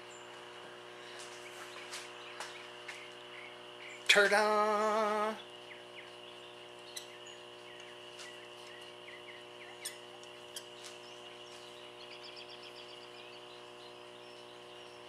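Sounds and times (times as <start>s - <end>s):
electrical hum: 0.0s - 15.0s
high insect-like whine: 0.0s - 15.0s
bird chirps: 5.3s - 15.0s
bird trill: 5.4s - 15.0s.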